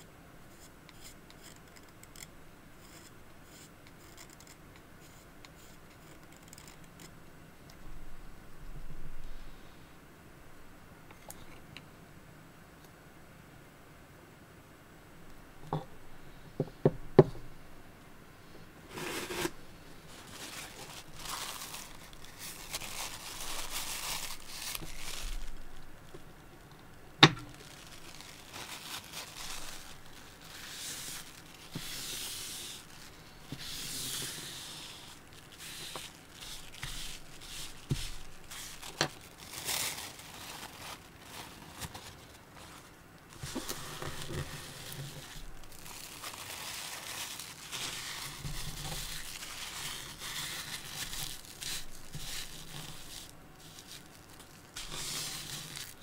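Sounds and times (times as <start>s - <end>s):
paper tissue rustling: 18.9s - 26.7s, 27.4s - 56.0s.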